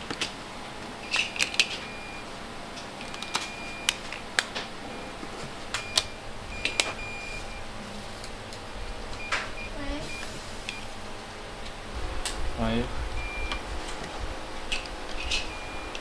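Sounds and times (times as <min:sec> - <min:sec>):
short electronic beeps: 0:01.0 - 0:02.3, 0:03.1 - 0:04.0, 0:05.8 - 0:07.7, 0:13.2 - 0:13.6, 0:15.4 - 0:16.0.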